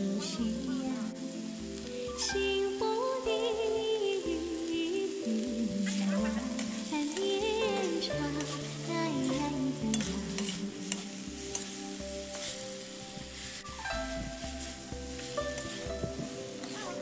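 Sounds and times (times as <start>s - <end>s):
noodles sizzling in a wok: 0.0s - 17.0s
metal spatula scraping a pan: 5.8s - 17.0s.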